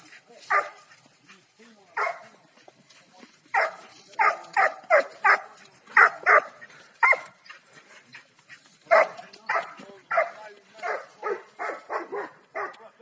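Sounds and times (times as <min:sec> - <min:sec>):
dog barking: 0:00.5 - 0:00.9, 0:02.0 - 0:02.4, 0:03.5 - 0:07.4, 0:08.9 - 0:12.9.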